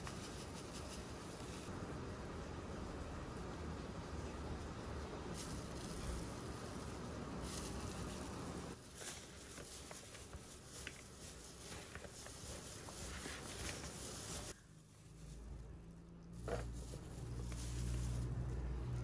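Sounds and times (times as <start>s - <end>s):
steady soft hiss: 0.0s - 19.0s
plastic glove crinkling: 5.3s - 19.0s.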